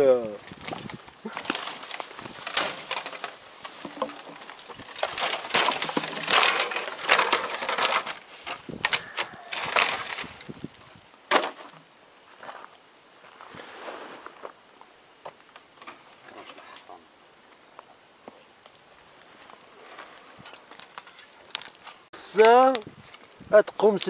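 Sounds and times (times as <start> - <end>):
footsteps crunching through twigs: 0.4 - 16.8.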